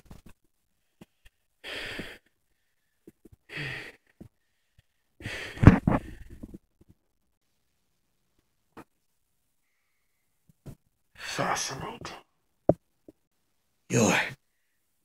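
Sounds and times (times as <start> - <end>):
person breathing heavily: 1.0 - 6.5.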